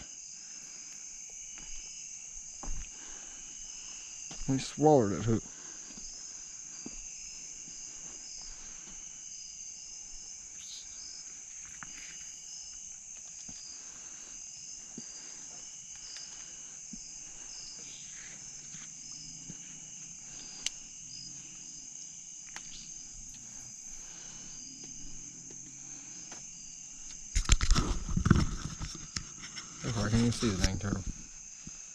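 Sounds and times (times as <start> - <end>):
crickets trilling: 0.0 - 31.9
pulsing chirp: 6.0 - 13.0, 17.1 - 27.0.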